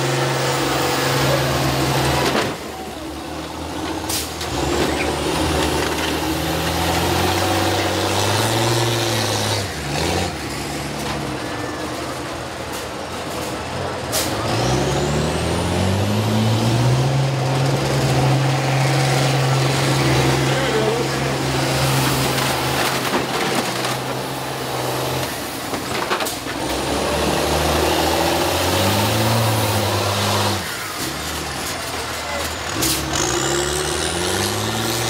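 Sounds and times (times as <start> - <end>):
bus engine revving: 0.0 - 35.0
vehicle collision crash: 21.6 - 26.7.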